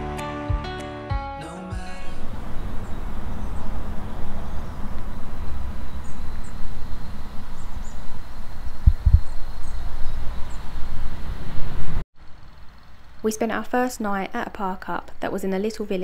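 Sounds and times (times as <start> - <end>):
wind buffeting microphone: 2.3 - 12.0
small birds chirping: 2.3 - 14.3
low thumps: 8.7 - 10.3.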